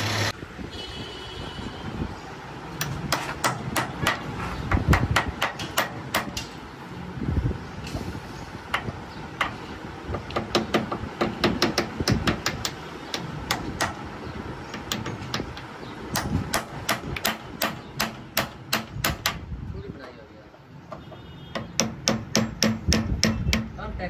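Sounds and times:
hammer tapping on metal: 0:02.8 - 0:06.6, 0:08.7 - 0:14.0, 0:14.7 - 0:19.4, 0:20.9 - 0:23.8.

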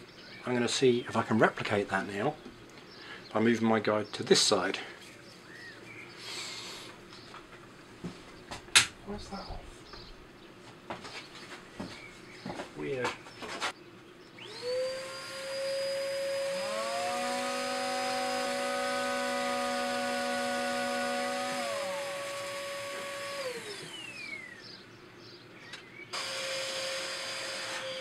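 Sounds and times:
electric sander whining: 0:14.4 - 0:24.7, 0:26.2 - 0:28.0.

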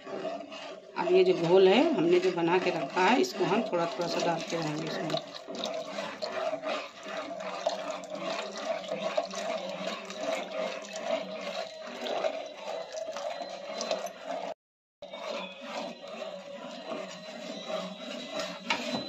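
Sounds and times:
liquid sloshing: 0:00.0 - 0:19.0
spoon stirring and scraping a pan: 0:00.0 - 0:19.0
liquid pouring into milk: 0:03.8 - 0:14.2.

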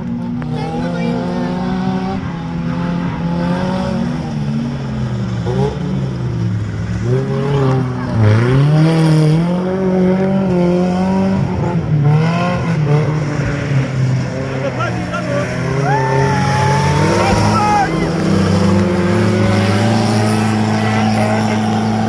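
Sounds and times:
truck engine revving hard: 0:00.4 - 0:22.0.

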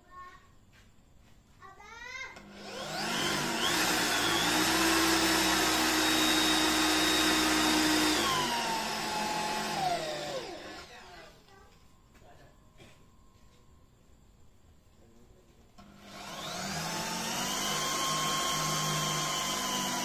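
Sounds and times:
electric drill boring into wood: 0:02.4 - 0:11.4, 0:15.8 - 0:20.0.

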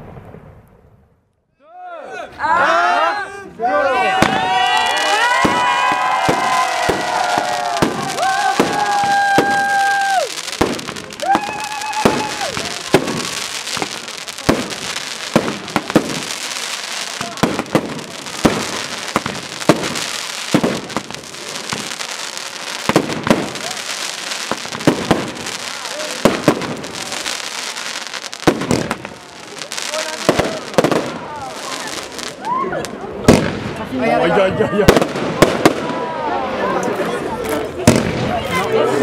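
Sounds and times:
fireworks crackling: 0:04.0 - 0:39.0
firework bangs: 0:04.1 - 0:34.1, 0:34.8 - 0:36.2, 0:37.8 - 0:38.6
firework whistles: 0:04.2 - 0:29.7.

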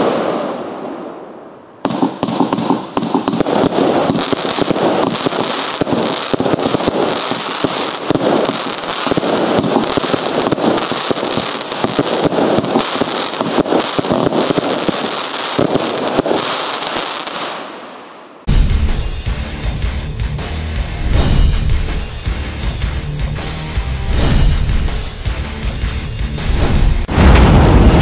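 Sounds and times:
fireworks launch thumps and bursts: 0:01.8 - 0:17.6, 0:21.0 - 0:22.3, 0:24.1 - 0:25.8.

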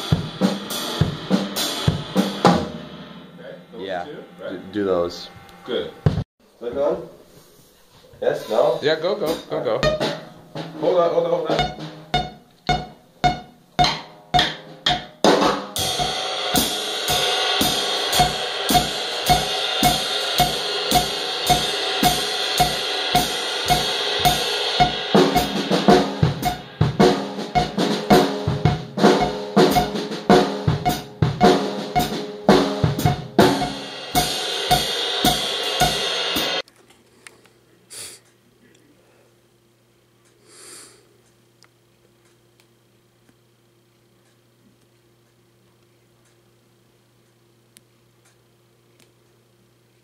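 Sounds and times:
snare and bass drum groove: 0:00.0 - 0:02.9, 0:09.3 - 0:36.6
washing cymbal: 0:11.4 - 0:15.2, 0:15.8 - 0:36.6.

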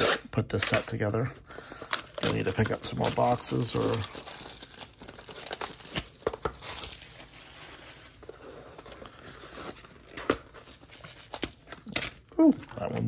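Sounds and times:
plastic wrap crinkling: 0:01.8 - 0:08.1.

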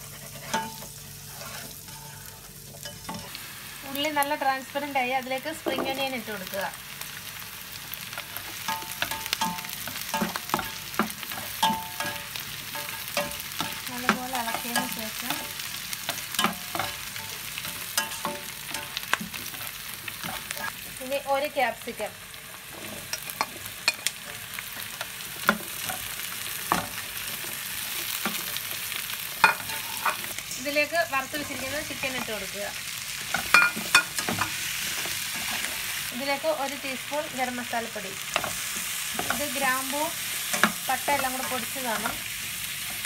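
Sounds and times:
onions sizzling in hot oil: 0:00.0 - 0:43.0
spatula knocking and scraping pan: 0:08.5 - 0:19.6.

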